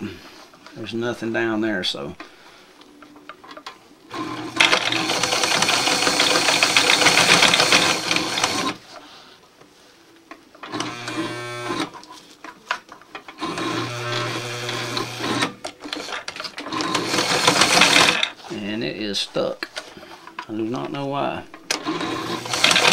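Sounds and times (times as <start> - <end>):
sewing machine motor humming: 4.1 - 8.8, 10.7 - 11.9, 13.4 - 18.3, 21.7 - 22.9
sewing machine stitching: 4.1 - 8.8, 13.4 - 18.4, 21.7 - 22.9.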